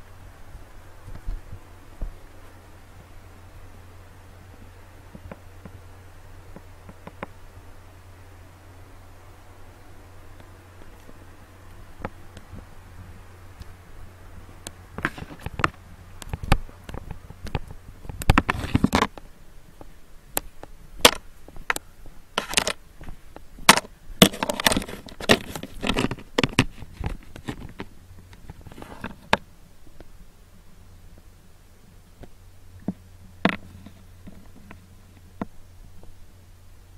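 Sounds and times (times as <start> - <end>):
electric fan hum: 0.0 - 36.9
camera handling clicks and rustles: 22.4 - 29.4.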